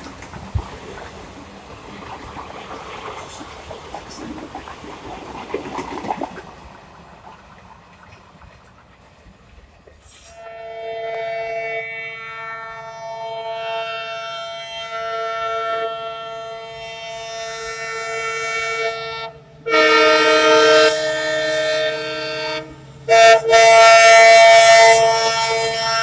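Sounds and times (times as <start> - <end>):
train horn blasts: 10.2 - 26.0.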